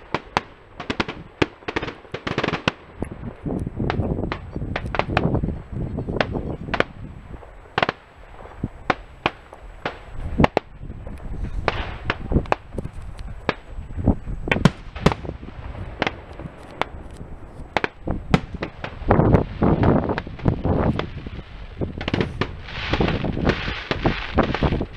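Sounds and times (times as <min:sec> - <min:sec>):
rapid fireworks cracks: 0:00.0 - 0:24.9
fireworks shells bursting: 0:06.2 - 0:24.9.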